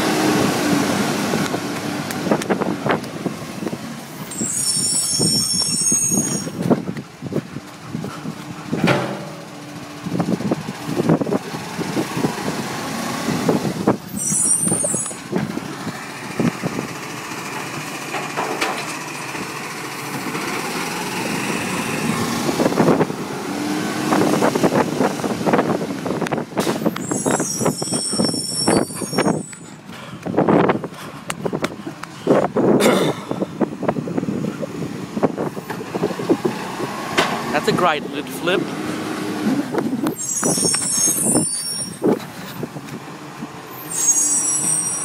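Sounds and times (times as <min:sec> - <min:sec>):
hydraulics whining: 0:00.0 - 0:45.0
air brakes hissing: 0:26.6 - 0:31.2, 0:40.1 - 0:42.6, 0:43.8 - 0:45.0.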